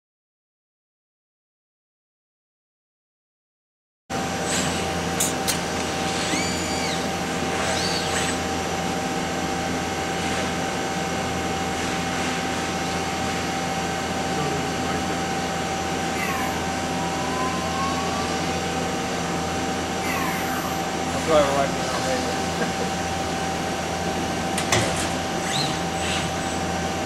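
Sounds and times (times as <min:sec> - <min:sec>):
machine hum with held tone: 0:04.1 - 0:27.0
robot arm servo whines: 0:04.4 - 0:08.7, 0:15.7 - 0:21.2, 0:24.6 - 0:27.0.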